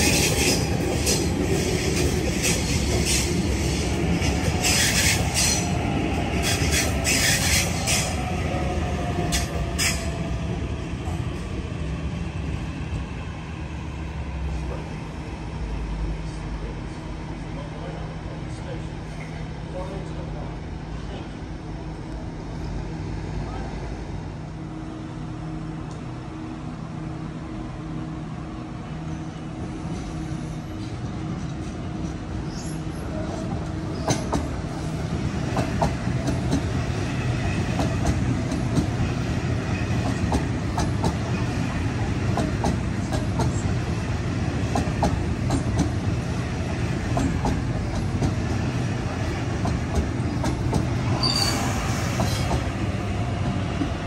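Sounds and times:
train rumbling past: 0.0s - 54.0s
wheels clacking over rail joints: 46.9s - 48.6s
wheel squeal: 51.2s - 51.8s.

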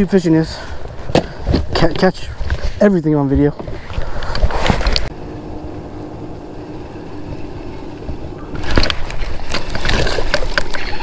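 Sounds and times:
faint steady hum: 3.8s - 11.0s.

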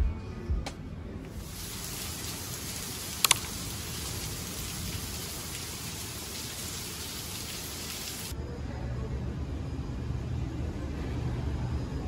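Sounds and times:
rain falling steadily: 1.3s - 8.4s.

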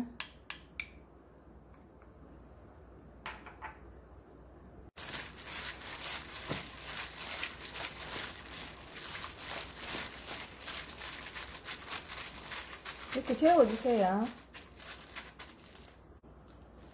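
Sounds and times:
gloved hands kneading raw meat: 5.0s - 16.9s.

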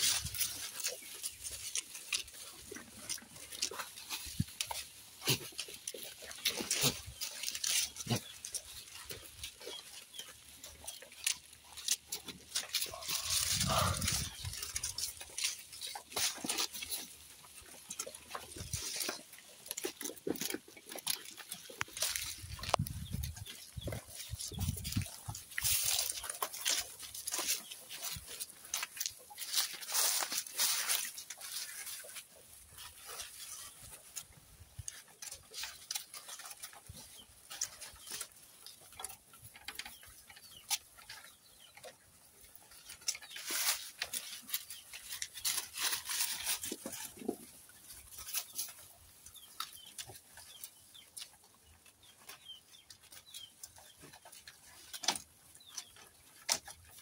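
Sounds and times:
leaves rustling and crackling: 0.0s - 41.6s, 42.3s - 57.0s
animal calls: 11.8s - 15.2s.

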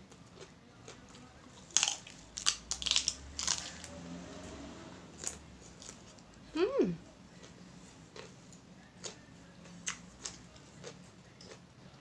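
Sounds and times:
crunching of raw stalk being chewed: 1.6s - 3.9s.

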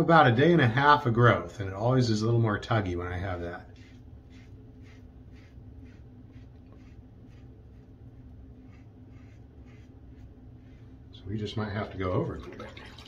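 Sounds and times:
razor scraping stubble: 3.1s - 11.0s.

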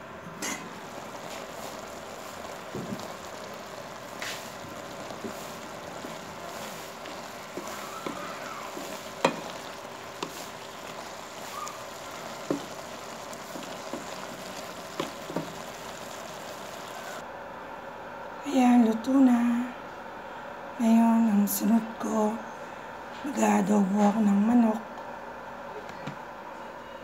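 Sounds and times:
squash sizzling in a wok: 0.3s - 17.2s
wooden spatula stirring: 0.4s - 17.2s.

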